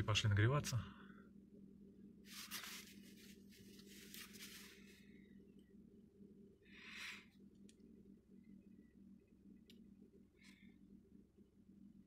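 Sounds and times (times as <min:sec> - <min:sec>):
soft hissing rustles: 0:02.2 - 0:05.0.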